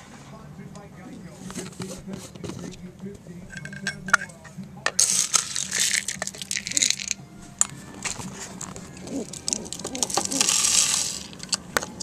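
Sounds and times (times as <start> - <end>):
seeds rattling in plastic cup: 5.0 - 7.2, 8.0 - 11.6
rustling: 5.0 - 11.6.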